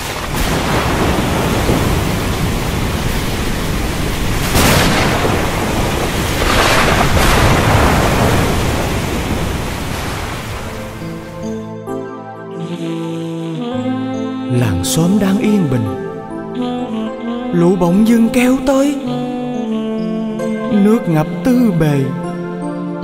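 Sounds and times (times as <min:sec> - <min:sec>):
thunder cracks: 0:00.0 - 0:11.3
heavy rain hissing: 0:00.0 - 0:11.5.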